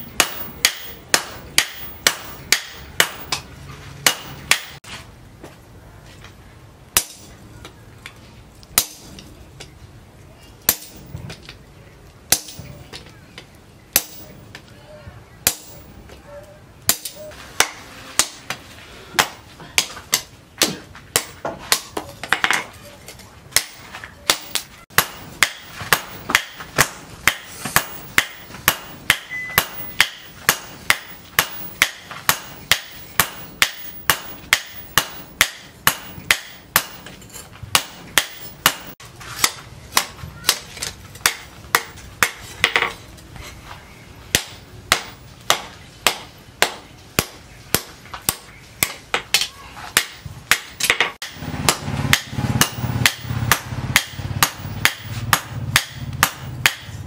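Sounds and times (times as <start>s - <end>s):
hammer striking metal on anvil: 0.0s - 4.8s, 10.7s - 11.1s, 12.3s - 12.7s, 13.9s - 14.4s, 15.4s - 16.0s, 23.6s - 40.6s, 50.0s - 57.0s.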